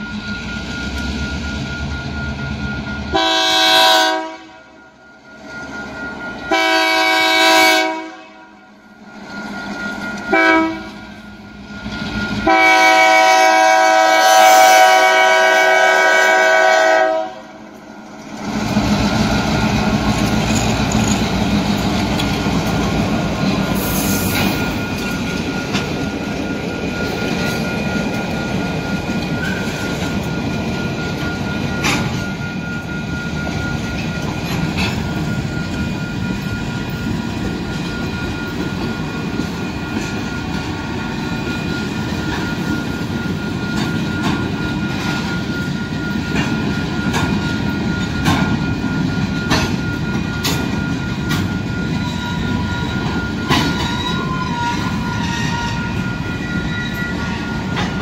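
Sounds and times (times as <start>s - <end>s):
crossing bell dinging: 0.0s - 58.0s
freight train wheels rumbling: 0.0s - 58.0s
locomotive horn blasts: 3.1s - 4.8s, 6.5s - 8.6s, 10.3s - 11.0s, 12.4s - 17.6s, 53.6s - 56.1s.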